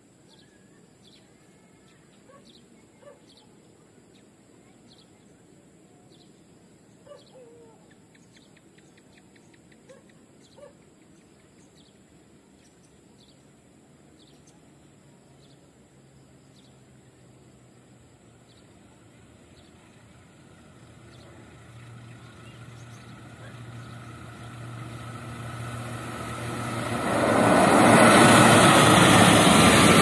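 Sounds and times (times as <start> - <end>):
diesel locomotive drone: 15.8 - 30.0
birds chirping with trill: 20.8 - 25.0.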